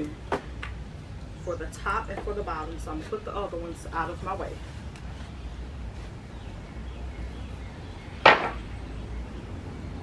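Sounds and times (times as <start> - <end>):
wooden boards clattering: 8.2 - 8.7.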